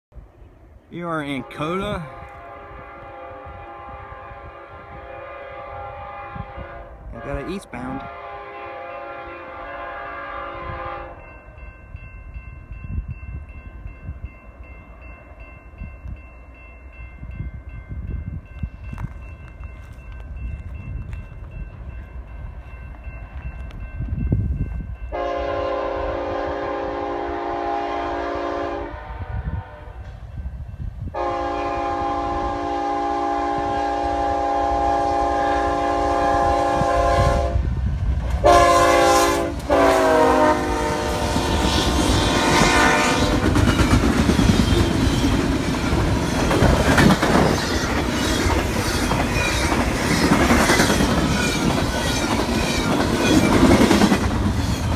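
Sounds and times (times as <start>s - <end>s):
locomotive air horn: 1.3s - 11.2s, 25.1s - 30.1s, 31.1s - 37.7s, 38.4s - 43.4s
train wheels rumbling and clacking: 35.0s - 54.9s.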